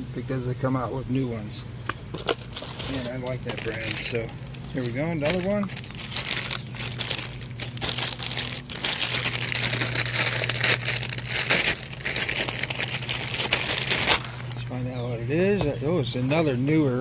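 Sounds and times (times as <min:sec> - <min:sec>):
plastic mailer bag crinkling: 0:02.2 - 0:14.6.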